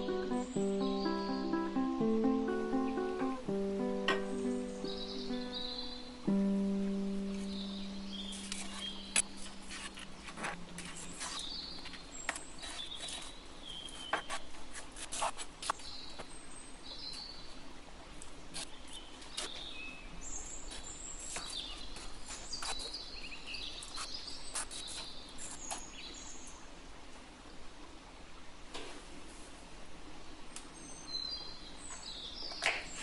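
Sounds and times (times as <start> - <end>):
birds chirping: 0.0 - 14.3.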